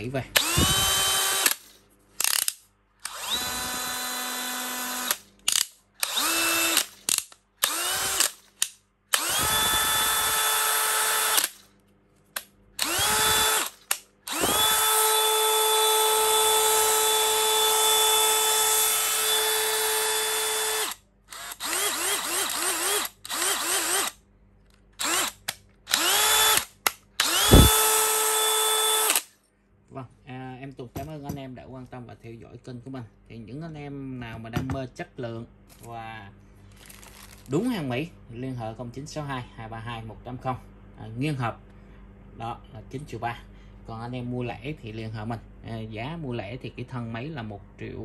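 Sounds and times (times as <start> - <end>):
cordless drill motor whining: 0.4 - 7.0, 7.6 - 8.4, 9.1 - 11.6, 12.8 - 24.2, 25.0 - 29.2.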